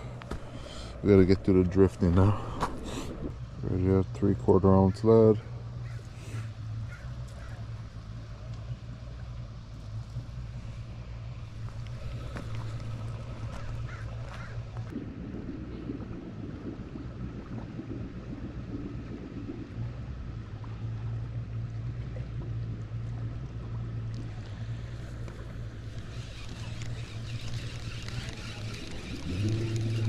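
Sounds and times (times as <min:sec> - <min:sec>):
steady low rumble: 0:00.0 - 0:30.0
fishing reel ticking whir: 0:25.1 - 0:30.0.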